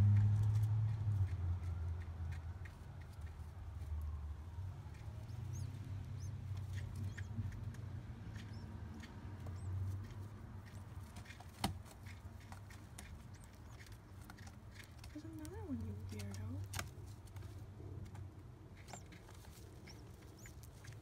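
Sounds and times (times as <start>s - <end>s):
pigeon squab peeping: 0.0s - 21.0s
scratchy clicks in nest: 4.8s - 21.0s.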